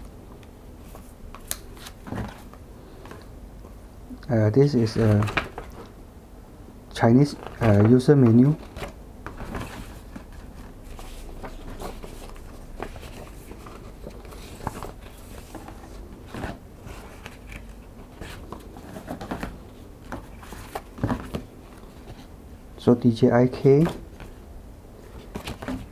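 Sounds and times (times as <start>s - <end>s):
paper leaflets rustling: 4.8s - 5.9s, 7.2s - 22.3s.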